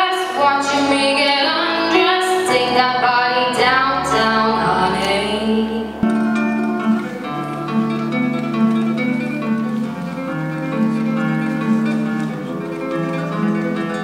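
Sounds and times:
fingerstyle classical guitar: 0:00.1 - 0:14.0.

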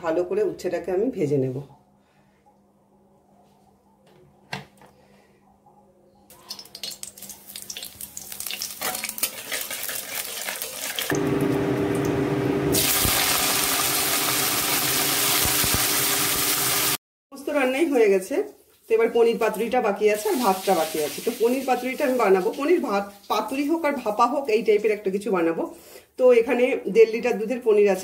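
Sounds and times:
hot oil crackling and spitting: 0:06.3 - 0:17.0, 0:20.2 - 0:24.6
vegetables sizzling in hot oil: 0:06.5 - 0:17.0, 0:20.0 - 0:24.9.

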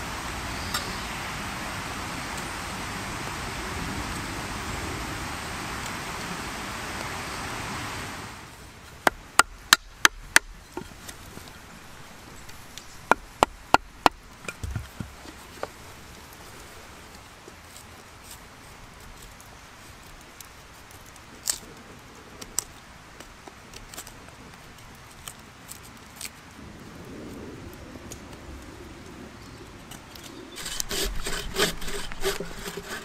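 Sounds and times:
steady hiss: 0:00.0 - 0:33.0
knife cutting into wood: 0:30.6 - 0:33.0.

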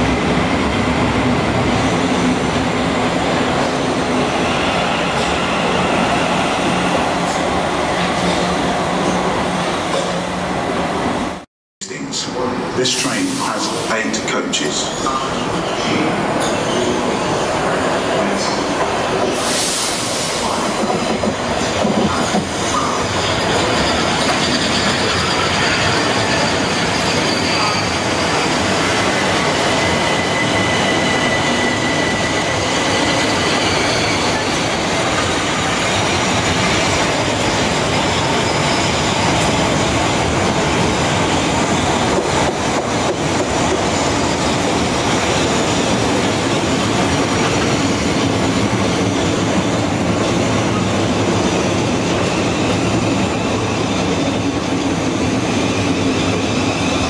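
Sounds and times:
train wheels rumbling on rail: 0:12.3 - 0:57.0
wheel or brake squeal: 0:23.2 - 0:34.5.

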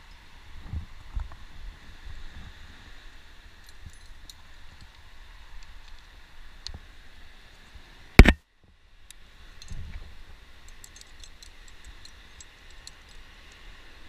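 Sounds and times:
climbing gear clicking against rock: 0:10.6 - 0:13.8.

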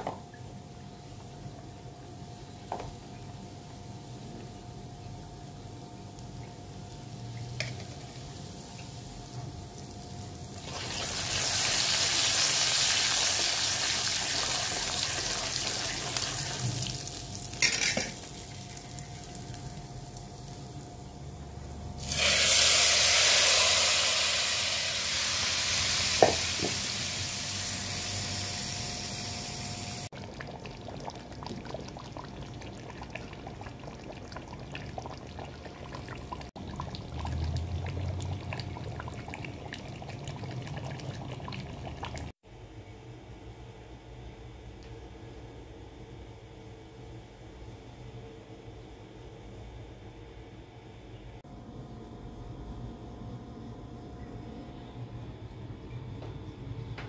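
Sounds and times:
hot oil sizzling: 0:07.0 - 0:42.3.

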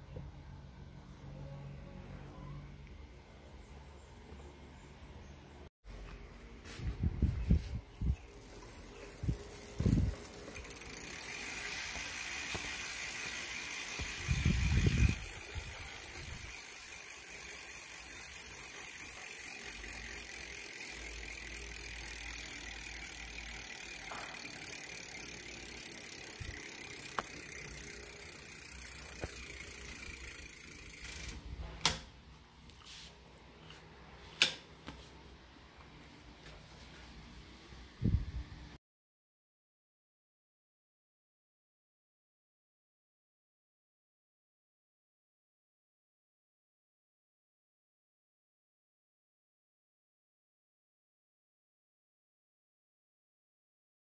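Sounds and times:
bike chain and freehub whirring: 0:00.0 - 0:06.2, 0:06.9 - 0:32.9.

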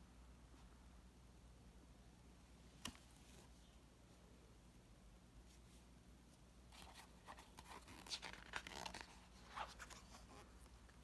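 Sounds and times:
paper pages rustling: 0:06.7 - 0:11.0.

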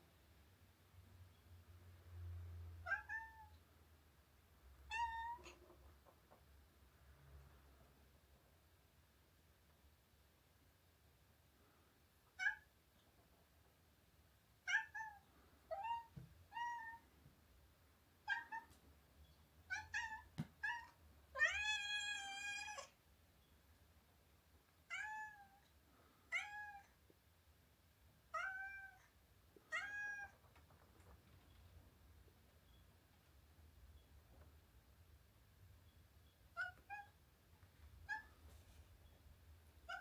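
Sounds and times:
cat meowing: 0:02.8 - 0:03.6, 0:04.9 - 0:05.7, 0:12.3 - 0:12.7, 0:14.6 - 0:17.1, 0:18.2 - 0:18.8, 0:19.7 - 0:23.0, 0:24.9 - 0:25.6, 0:26.3 - 0:26.9, 0:28.3 - 0:29.1, 0:29.7 - 0:30.4, 0:36.5 - 0:37.2, 0:38.0 - 0:38.4.

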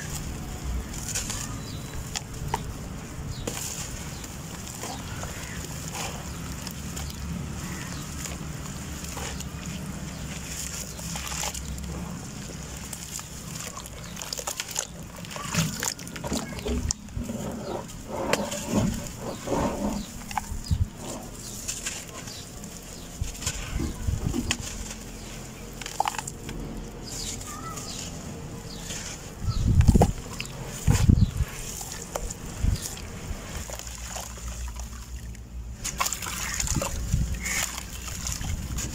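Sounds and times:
dirt splashing into water: 0:00.0 - 0:17.2, 0:17.8 - 0:38.9.

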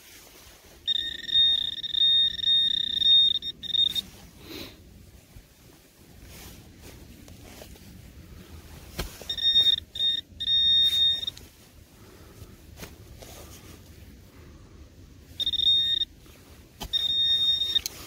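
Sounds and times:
metal detector alert beeps: 0:00.8 - 0:04.1, 0:09.2 - 0:11.5, 0:15.3 - 0:16.1, 0:16.8 - 0:18.0.

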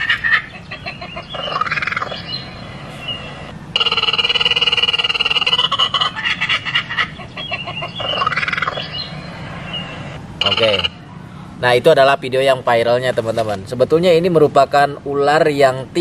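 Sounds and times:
crowing animal calls: 0:00.0 - 0:11.1
rapidly pulsing call: 0:00.0 - 0:11.2.

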